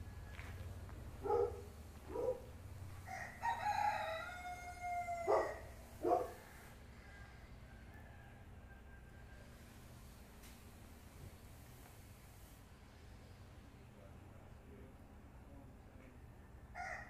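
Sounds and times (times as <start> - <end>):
rooster crowing: 0.0 - 0.8, 3.0 - 9.7, 16.7 - 17.0.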